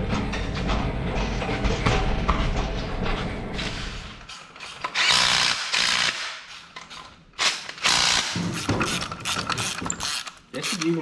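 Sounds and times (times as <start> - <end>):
impact driver rattling: 7.4 - 10.9.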